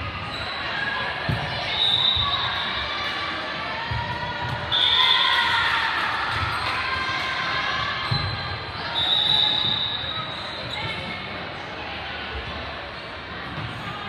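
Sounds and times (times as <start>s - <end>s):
voices of players and spectators: 0.0s - 14.0s
shoe squeaks: 0.3s - 0.8s, 8.1s - 11.2s.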